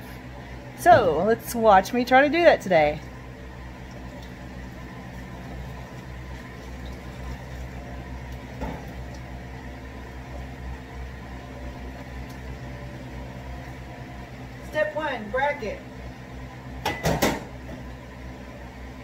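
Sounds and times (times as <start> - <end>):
low machine hum: 0.0 - 19.0.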